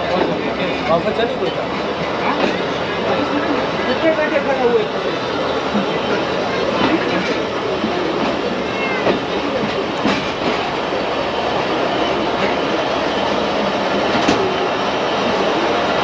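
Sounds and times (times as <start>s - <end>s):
train rumbling and rattling: 0.0s - 16.0s.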